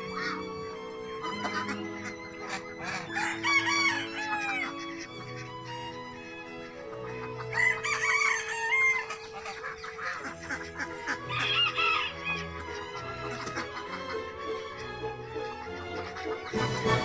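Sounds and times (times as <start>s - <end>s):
birds calling: 0.0s - 17.0s
music with long low notes: 0.0s - 17.0s.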